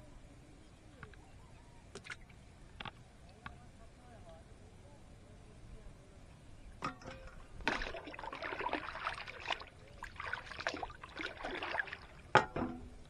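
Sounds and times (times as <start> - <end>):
water splashing from bowl: 7.0 - 12.6.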